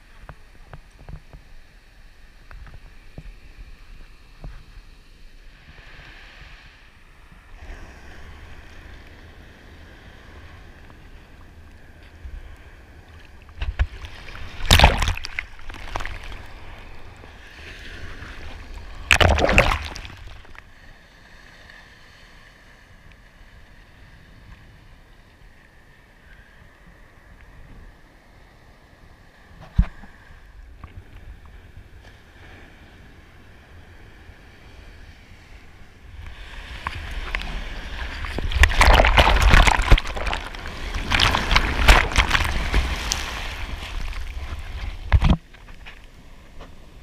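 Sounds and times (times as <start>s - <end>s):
seawater sloshing and rushing: 13.0s - 20.7s, 36.2s - 46.0s
loud washes of water: 14.0s - 16.5s, 18.0s - 20.6s, 36.5s - 44.3s.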